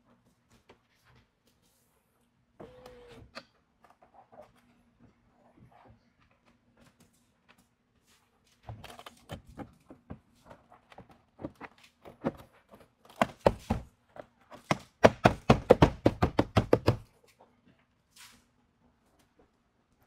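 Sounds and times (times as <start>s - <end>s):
hands knocking on truck window: 15.0s - 17.0s.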